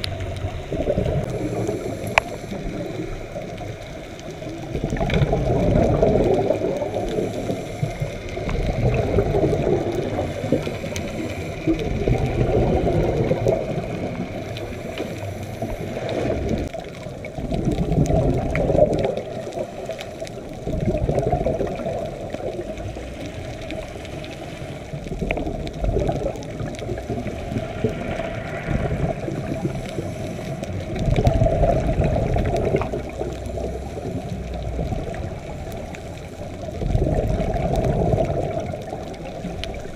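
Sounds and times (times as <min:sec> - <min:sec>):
underwater bubbles gurgling: 0:00.0 - 0:39.9.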